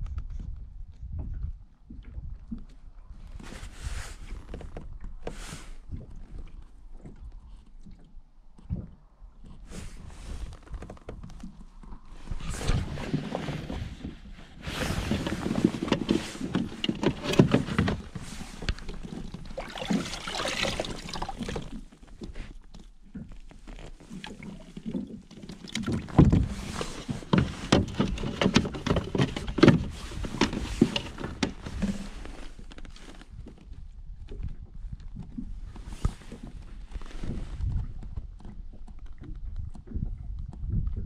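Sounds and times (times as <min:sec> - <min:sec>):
hard plastic knocks and clunks: 0:15.2 - 0:19.5, 0:24.9 - 0:32.0.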